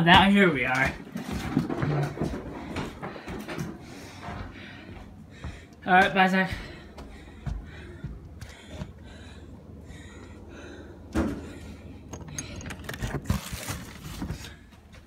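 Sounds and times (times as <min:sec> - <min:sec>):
rustling and handling noise: 0:12.0 - 0:15.0.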